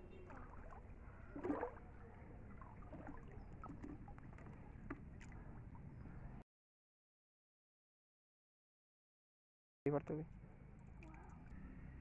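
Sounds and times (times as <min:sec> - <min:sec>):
water sloshing around wading: 0:00.0 - 0:06.4
water splash: 0:00.2 - 0:05.4.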